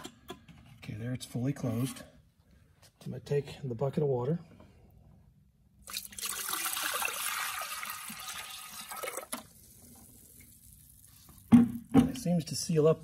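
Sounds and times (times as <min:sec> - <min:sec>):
water splashing into toilet bowl: 0:05.8 - 0:12.0.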